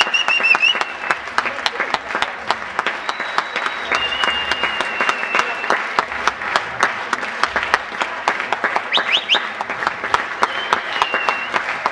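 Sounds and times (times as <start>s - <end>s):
quick rising whistles: 0.0s - 1.1s, 3.0s - 5.8s, 10.4s - 11.6s
held whistle: 0.0s - 1.2s, 3.0s - 5.8s, 8.9s - 9.5s, 10.4s - 11.6s
audience applauding: 0.0s - 11.9s.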